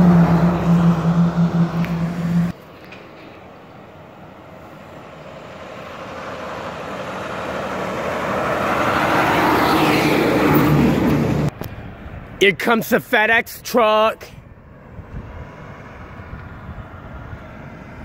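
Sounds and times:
truck engine and tyre noise: 0.0 - 18.0.

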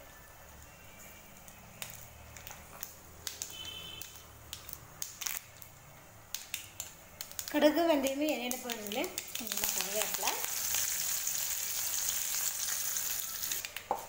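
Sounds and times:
seeds frying in hot oil: 0.0 - 14.0
mustard seeds popping: 1.5 - 5.7, 6.3 - 10.8.

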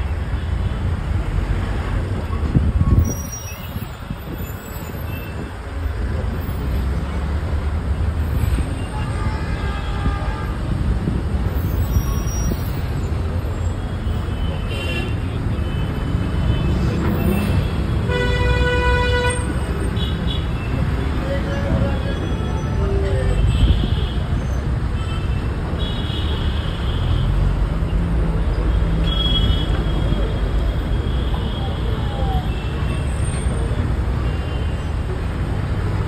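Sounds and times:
vehicle road rumble: 0.0 - 36.0
vehicle horns honking: 14.4 - 20.5.

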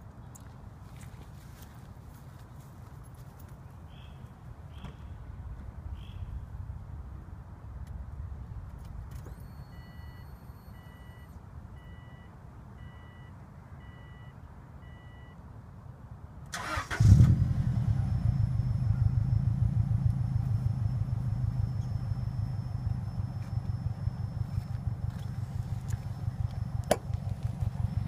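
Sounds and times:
faint high whine: 9.2 - 15.4, 17.4 - 28.0
soft beeps: 9.3 - 15.4
car engine starting and idling: 16.5 - 28.0.

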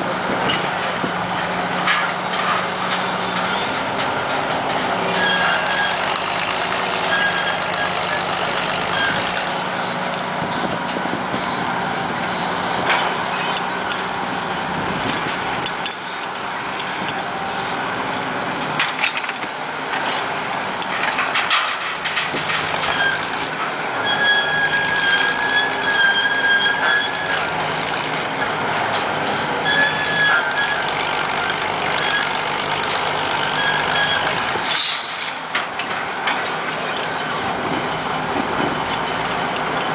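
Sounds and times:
crane engine running: 0.0 - 39.9
machinery clanks: 0.1 - 39.9
high-pitched machinery squeals: 5.1 - 18.2, 22.7 - 28.2, 29.6 - 32.6, 33.3 - 35.2, 36.7 - 39.9.

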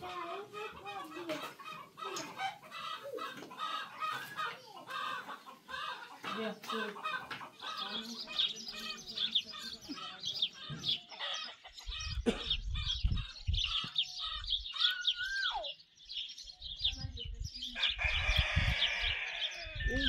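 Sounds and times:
chickens clucking: 0.0 - 14.6.

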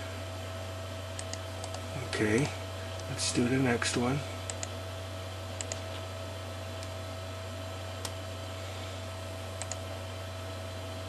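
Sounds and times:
electrical hum: 0.0 - 11.0
computer mouse clicks: 1.2 - 1.8, 4.5 - 4.7, 5.6 - 6.0, 9.6 - 9.8.

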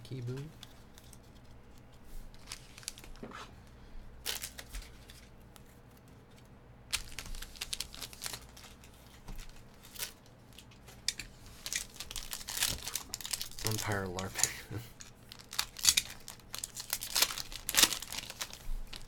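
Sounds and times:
foil wrapper crinkling and tearing: 2.3 - 3.2, 4.2 - 5.3, 6.9 - 19.0.

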